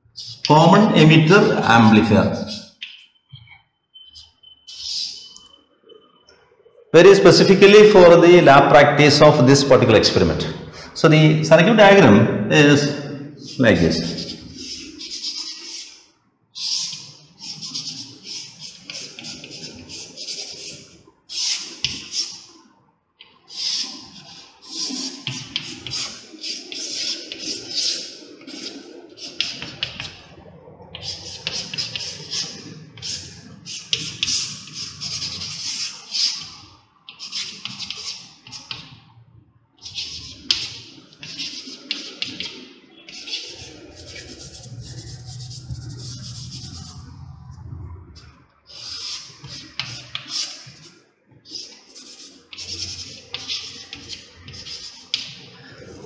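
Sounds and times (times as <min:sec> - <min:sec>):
chalk scratching on chalkboard: 0:00.2 - 0:00.5, 0:02.4 - 0:02.8, 0:04.7 - 0:05.2, 0:13.4 - 0:22.5, 0:23.5 - 0:30.2, 0:31.0 - 0:38.9, 0:39.8 - 0:47.2, 0:48.7 - 0:50.9, 0:51.5 - 0:55.5.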